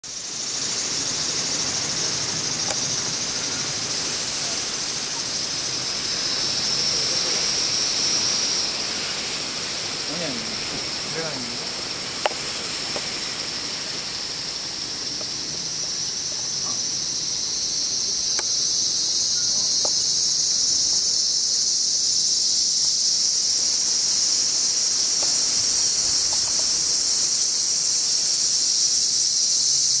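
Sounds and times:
cicadas buzzing: 0.0s - 30.0s.

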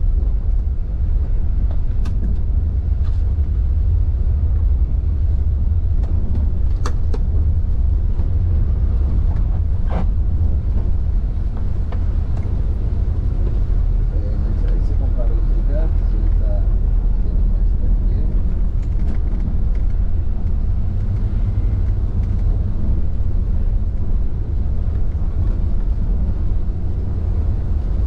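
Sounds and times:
engine and road rumble: 0.0s - 28.0s.

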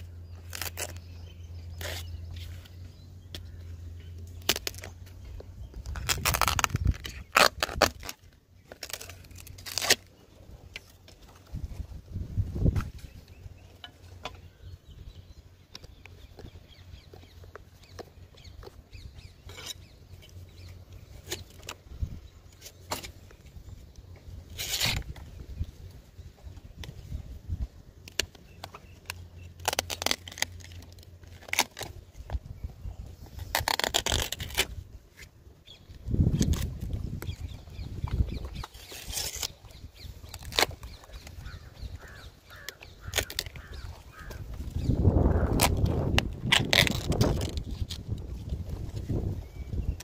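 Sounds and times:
wind rumble on microphone: 5.2s - 8.2s, 11.4s - 13.7s, 18.4s - 22.5s, 23.4s - 28.0s, 31.8s - 50.0s.

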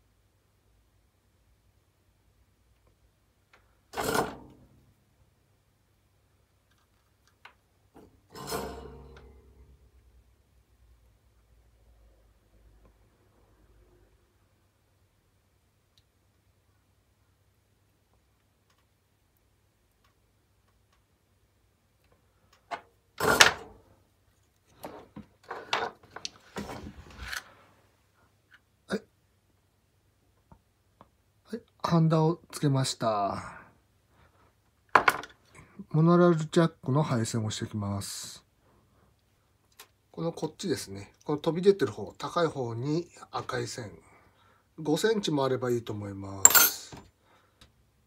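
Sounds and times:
parts clattering and rubbing: 8.0s - 9.5s, 24.4s - 27.6s, 46.4s - 47.1s
knock and scrape: 24.8s - 27.4s
tools clattering on workbench: 46.4s - 47.1s.

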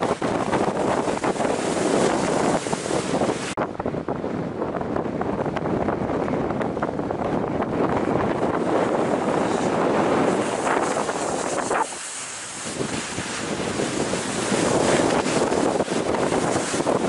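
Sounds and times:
wind rushing over microphone: 0.0s - 17.0s
snow hissing under skis: 0.2s - 3.6s, 8.6s - 17.0s.

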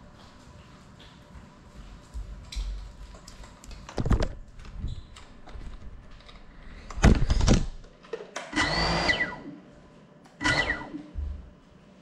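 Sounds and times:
drone motors revving: 8.6s - 9.5s, 10.4s - 11.0s.

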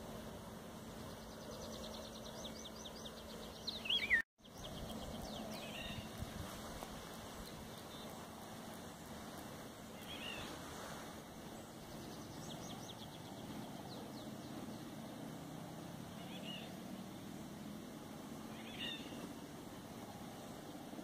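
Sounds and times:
bird singing fluting phrases: 1.1s - 6.1s, 18.5s - 19.2s.

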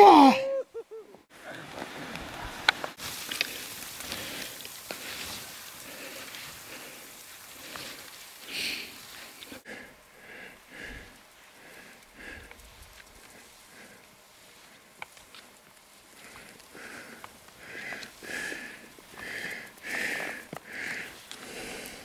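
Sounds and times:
faint ski swishes: 1.4s - 9.6s
skis hissing through snow: 1.4s - 22.0s.

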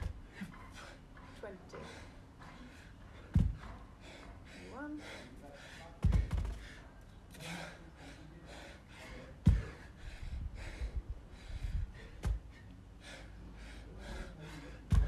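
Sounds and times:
man breathing heavily: 0.0s - 15.0s
dumbbell thudding on rubber mats: 3.3s - 3.8s, 6.0s - 6.6s, 9.4s - 9.8s.

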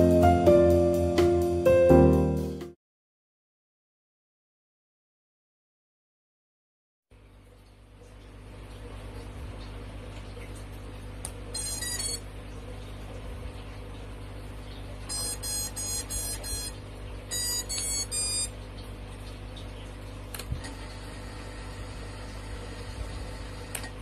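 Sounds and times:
rapid high-pitched electronic beeps: 15.1s - 18.5s
single click: 20.3s - 20.7s, 23.7s - 23.9s.

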